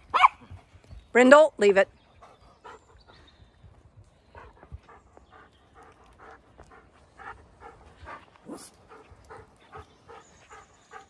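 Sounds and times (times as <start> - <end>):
dog panting: 4.3 - 11.0.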